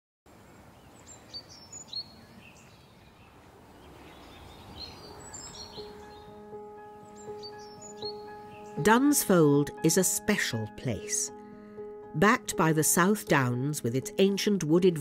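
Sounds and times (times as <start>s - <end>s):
bird chirps: 0.8s - 8.8s
soft sustained music notes: 4.0s - 15.0s.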